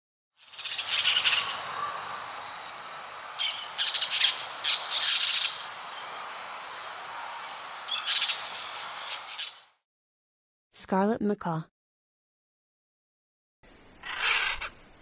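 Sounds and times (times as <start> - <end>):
background hiss: 0.4 - 9.7
parakeets shrill calls: 0.4 - 9.7, 14.0 - 14.7.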